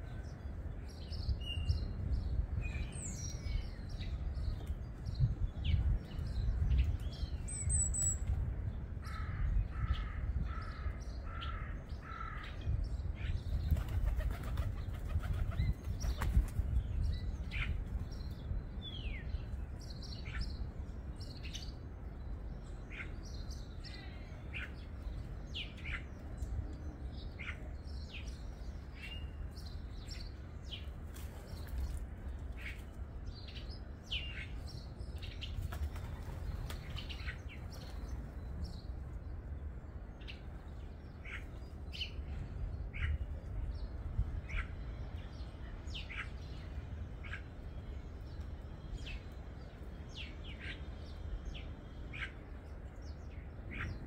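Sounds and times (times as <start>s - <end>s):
birds chirping: 0.0s - 54.0s.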